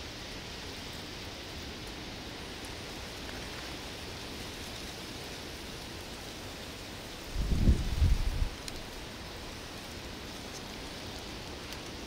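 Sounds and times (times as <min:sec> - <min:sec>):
wind on microphone: 0:07.3 - 0:08.6.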